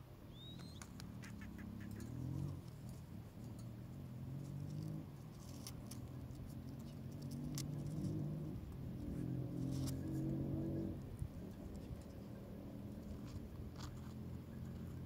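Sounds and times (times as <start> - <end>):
short rising bird chirp: 0.3 - 2.1.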